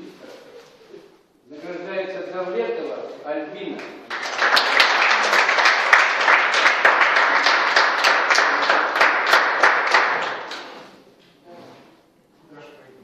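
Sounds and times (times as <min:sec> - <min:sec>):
people clapping: 0:03.8 - 0:11.0.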